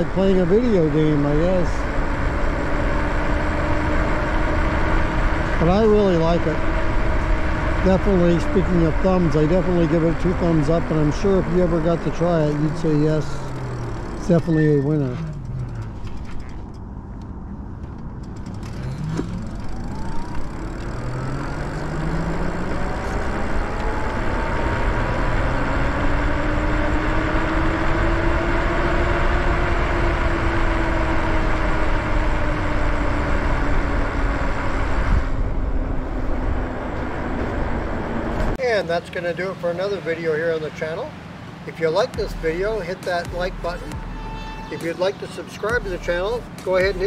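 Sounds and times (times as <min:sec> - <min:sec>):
electric bike motor whine: 0:18.4 - 0:38.0.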